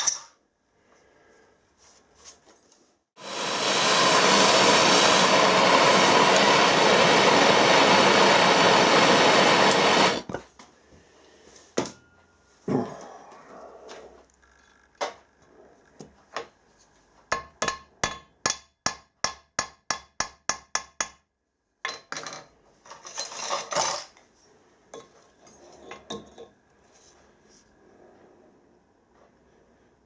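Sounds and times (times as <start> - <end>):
hammer striking metal: 17.3 - 21.2.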